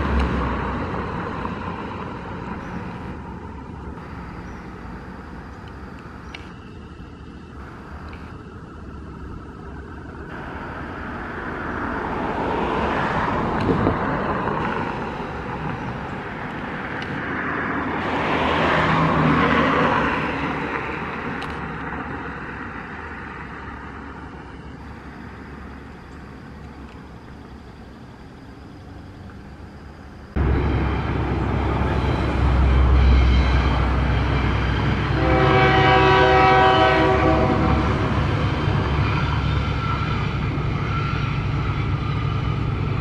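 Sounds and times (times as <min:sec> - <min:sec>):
steady low hum: 0:00.0 - 0:12.4
vehicles passing: 0:00.0 - 0:43.0.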